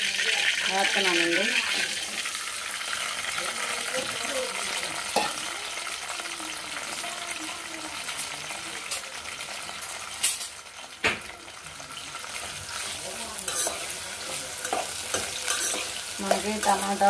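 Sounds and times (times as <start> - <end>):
vegetables sizzling in oil: 0.0 - 17.0
ladle stirring vegetables: 11.2 - 17.0.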